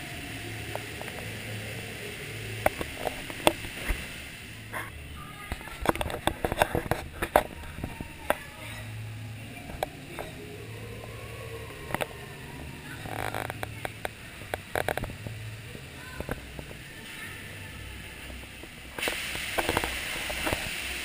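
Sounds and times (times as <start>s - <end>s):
low hum: 0.0s - 21.0s.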